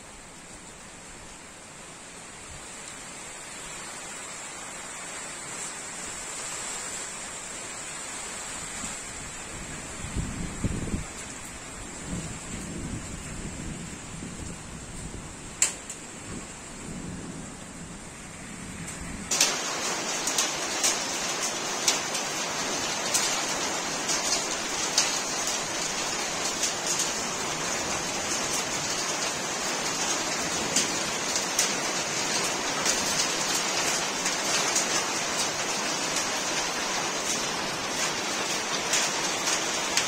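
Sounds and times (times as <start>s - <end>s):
hail and rain falling: 18.9s - 40.0s
hailstones clicking on hard surfaces: 19.3s - 40.0s.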